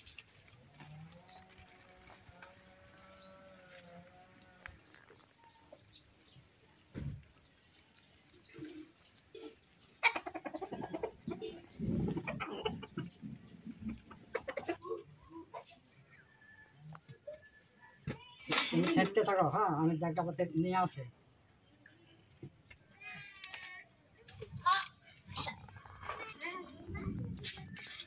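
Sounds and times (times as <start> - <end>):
small bird chirping: 2.5 - 15.4
chickens clucking: 8.4 - 16.2.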